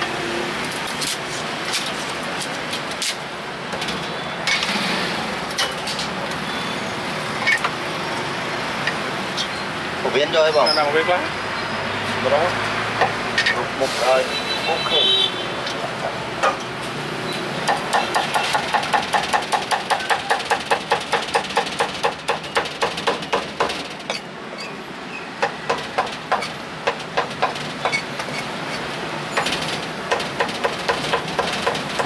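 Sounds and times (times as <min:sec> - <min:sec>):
cleaver chopping on wooden block: 0:17.7 - 0:23.8.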